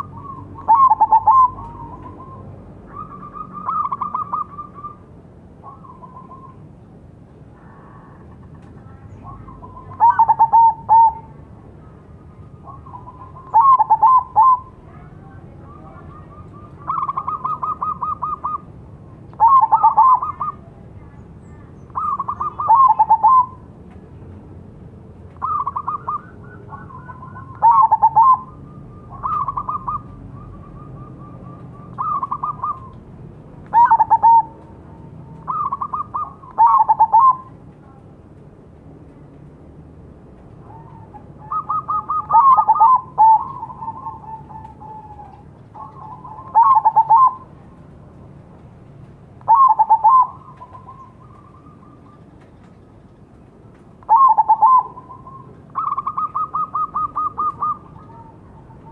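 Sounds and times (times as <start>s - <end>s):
dove cooing: 0.0s - 6.6s, 7.6s - 11.4s, 12.4s - 18.7s, 19.3s - 20.7s, 21.9s - 23.7s, 25.4s - 33.0s, 33.7s - 37.6s, 40.6s - 47.6s, 49.5s - 52.2s, 54.0s - 58.9s.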